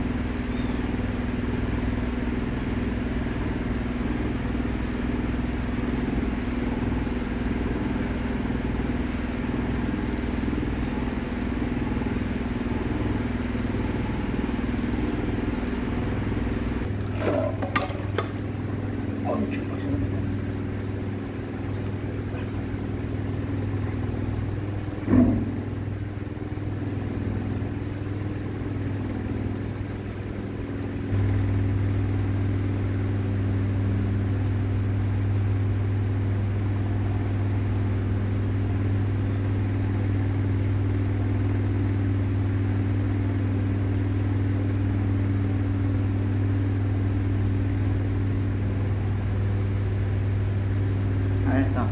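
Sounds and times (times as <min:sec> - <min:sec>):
low machine hum: 0:00.0 - 0:51.9.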